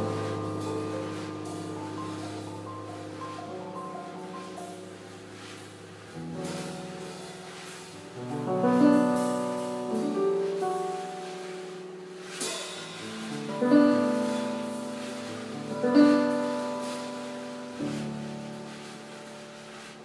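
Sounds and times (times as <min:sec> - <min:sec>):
jazz piano chords: 0:00.0 - 0:20.0
light drum stroke: 0:00.0 - 0:20.0.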